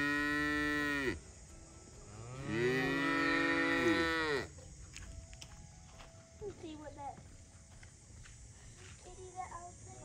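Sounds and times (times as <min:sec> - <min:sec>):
cow mooing: 0:00.0 - 0:01.2, 0:02.1 - 0:04.5.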